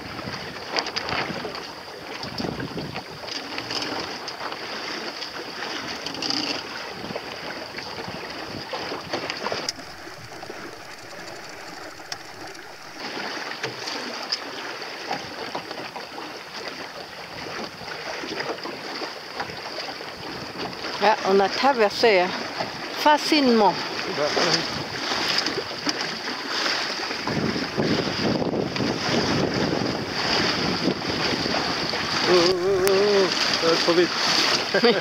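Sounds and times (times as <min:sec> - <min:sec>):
wind noise on microphone: 0:00.0 - 0:03.7, 0:06.9 - 0:13.3, 0:27.1 - 0:34.8
water splashing along boat hull: 0:00.0 - 0:35.0.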